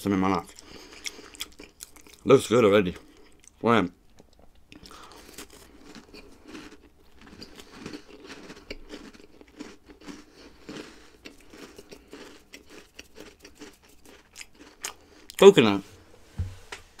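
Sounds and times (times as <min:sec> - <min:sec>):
person crunching a cookie: 0:00.3 - 0:02.3, 0:02.9 - 0:15.5.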